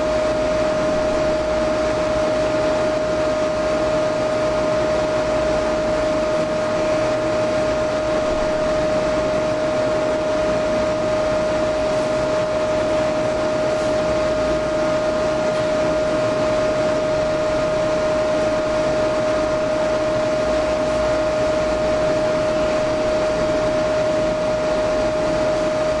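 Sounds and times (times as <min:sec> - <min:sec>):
cooling fan whirring: 0:00.0 - 0:26.0.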